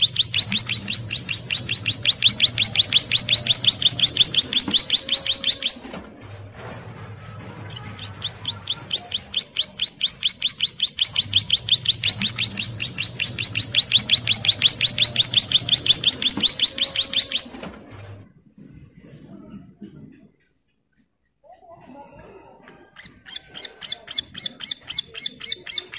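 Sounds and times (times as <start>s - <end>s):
bird singing a rapid trill: 0.0s - 5.9s, 7.8s - 17.6s.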